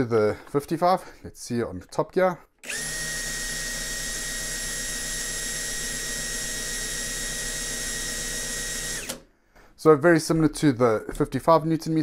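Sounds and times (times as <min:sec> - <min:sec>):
impact drill motor whine: 0:02.6 - 0:09.3.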